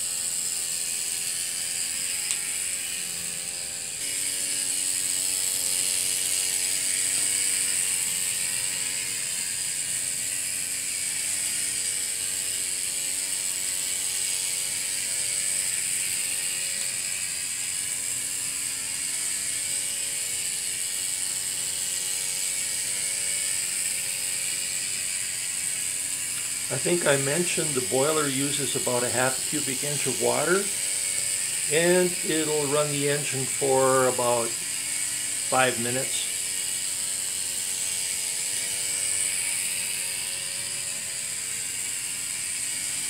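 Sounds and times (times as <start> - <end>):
miniature steam engine running: 0.0 - 43.0
steady high hiss: 31.7 - 34.6, 35.5 - 36.4.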